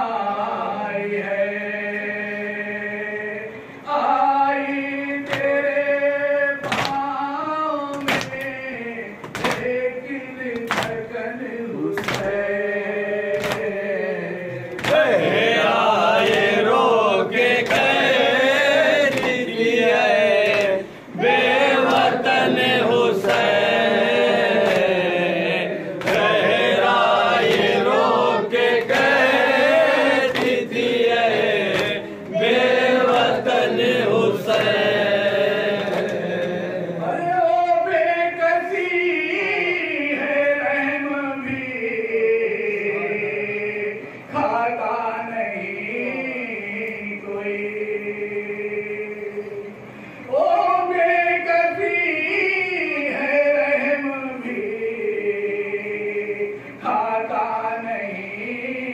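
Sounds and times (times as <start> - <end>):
group chanting: 0.0 - 44.7
lead reciter chanting into microphone: 0.0 - 58.9
chest-beating hand slaps: 6.6 - 7.0, 8.0 - 8.5, 9.2 - 9.7, 10.6 - 11.0, 12.0 - 12.4, 13.4 - 13.7, 19.1 - 19.5, 30.3 - 30.7, 31.6 - 32.5.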